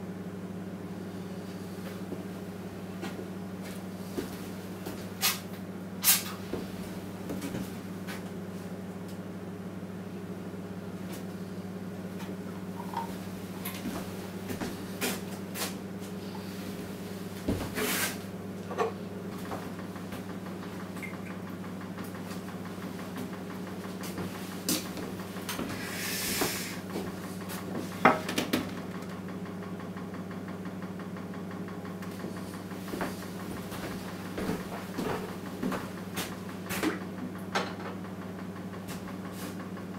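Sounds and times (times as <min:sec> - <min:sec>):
low electrical hum: 0:00.0 - 0:39.9
brief hiss: 0:25.8 - 0:26.8.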